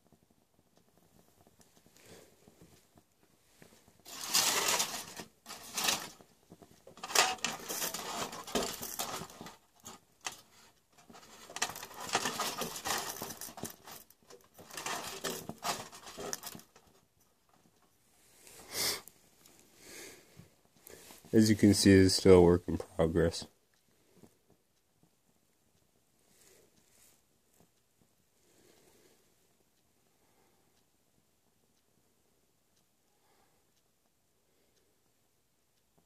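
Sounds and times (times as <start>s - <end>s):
foil crinkling and rattling: 4.0s - 17.0s.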